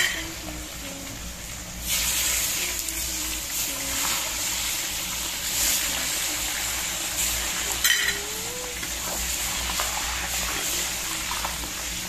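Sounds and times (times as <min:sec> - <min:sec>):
meat sizzling in oil: 0:01.2 - 0:12.0.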